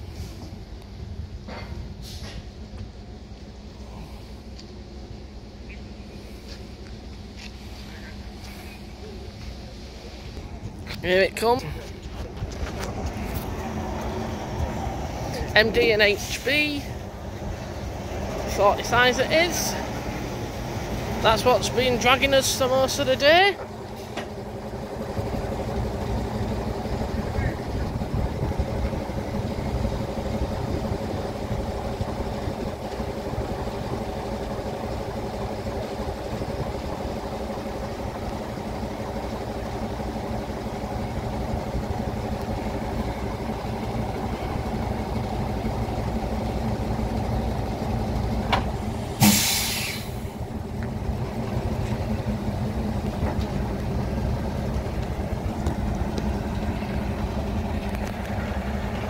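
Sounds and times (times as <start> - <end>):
diesel locomotive engine rumble: 0.0 - 59.0
air hiss: 48.9 - 50.3.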